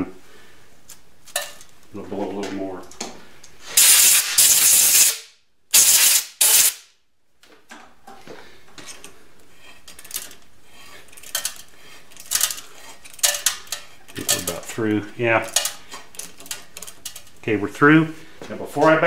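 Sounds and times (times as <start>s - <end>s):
compressed air blow gun hissing: 3.7s - 5.2s, 5.8s - 6.8s.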